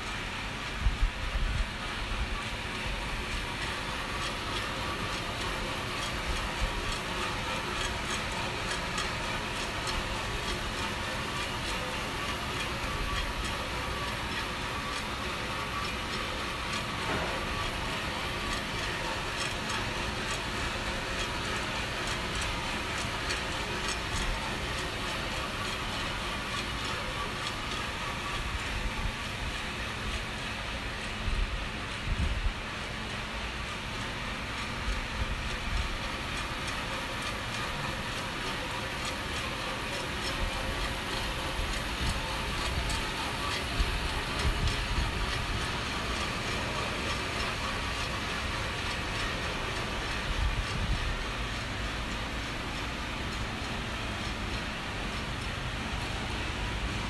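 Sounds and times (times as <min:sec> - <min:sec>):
coffee roaster whooshing: 0:00.0 - 0:57.0.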